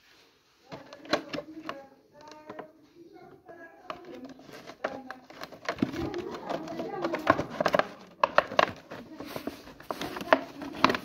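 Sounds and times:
indistinct voices: 0.7s - 11.0s
cardboard box clicks and taps: 4.8s - 9.0s.

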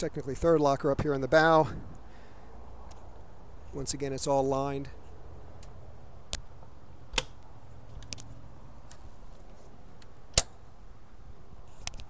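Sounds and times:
hatch latch clicks: 7.1s - 7.4s.

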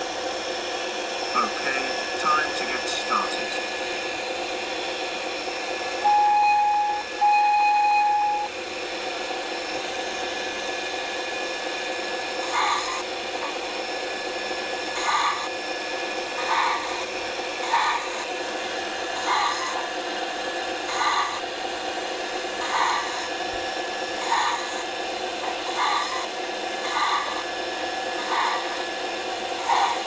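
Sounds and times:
steady mechanical hum: 0.0s - 30.0s
whistle toots: 6.0s - 8.5s.

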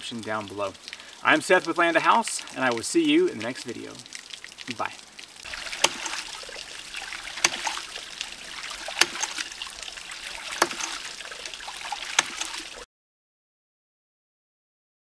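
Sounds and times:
water splashing: 0.0s - 12.9s
pump valve clicking shut: 5.5s - 11.1s, 11.8s - 12.7s.

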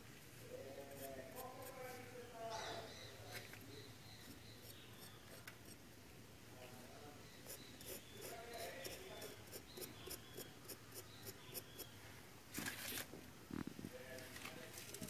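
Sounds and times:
knife scraping cement paste: 7.4s - 11.9s.

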